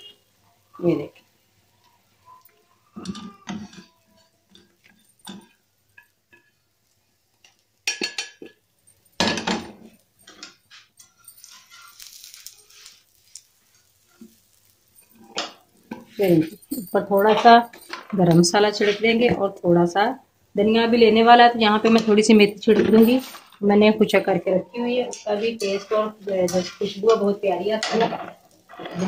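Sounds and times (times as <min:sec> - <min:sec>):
metal tongs clattering on pans: 0:03.0 - 0:06.6, 0:07.4 - 0:19.4, 0:21.8 - 0:24.1, 0:24.8 - 0:29.0.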